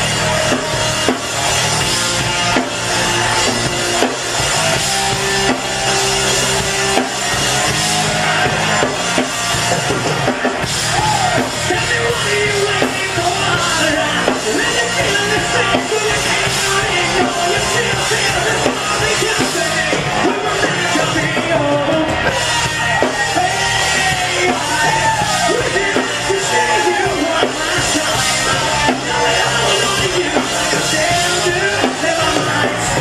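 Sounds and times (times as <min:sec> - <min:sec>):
rock band playing: 0:00.0 - 0:33.0
man singing into a microphone: 0:10.9 - 0:33.0.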